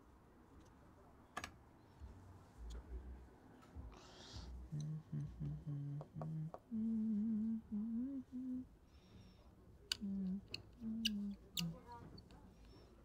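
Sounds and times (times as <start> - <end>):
man humming: 4.7 - 8.6.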